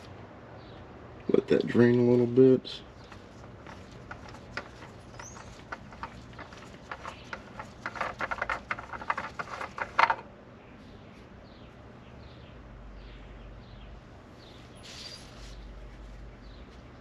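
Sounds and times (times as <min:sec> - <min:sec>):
oil filter clicking and squeaking: 0:02.9 - 0:10.3
bird chirps: 0:04.9 - 0:07.4, 0:10.6 - 0:15.7.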